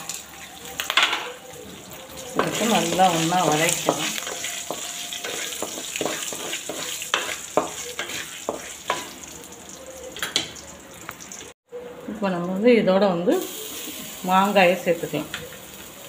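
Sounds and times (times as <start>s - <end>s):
food sizzling in hot oil: 0.0s - 11.6s, 12.4s - 16.0s
spatula scraping metal pan: 2.1s - 9.3s.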